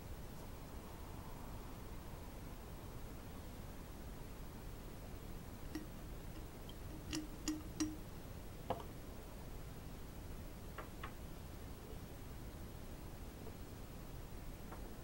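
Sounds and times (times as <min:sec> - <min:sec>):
glassware clinking: 0:05.7 - 0:08.0.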